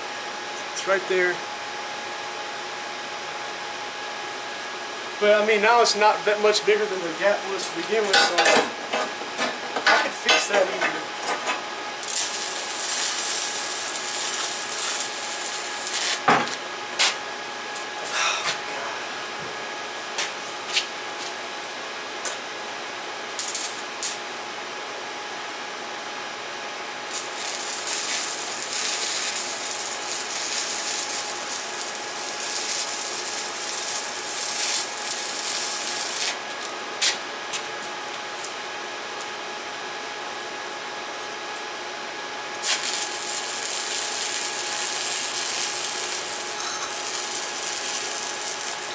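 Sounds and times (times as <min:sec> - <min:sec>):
welding arc crackling and hissing: 0:12.0 - 0:17.2, 0:23.3 - 0:24.3, 0:27.1 - 0:36.7, 0:42.6 - 0:48.9.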